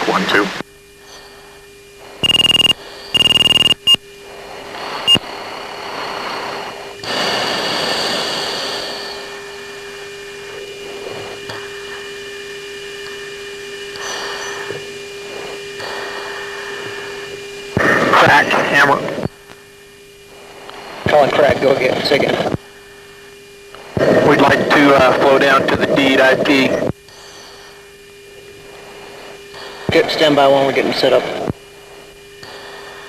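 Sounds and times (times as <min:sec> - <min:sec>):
radio hiss: 0:00.0 - 0:12.2, 0:17.8 - 0:19.6, 0:20.3 - 0:33.0
low hum: 0:01.1 - 0:05.8
short electronic tones: 0:02.2 - 0:04.0.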